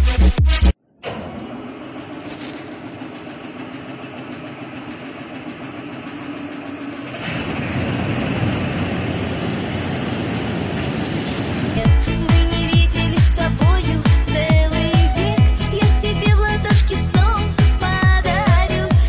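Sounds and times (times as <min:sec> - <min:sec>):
combine harvester engine: 0:01.0 - 0:13.1
mechanical clatter: 0:01.0 - 0:19.0.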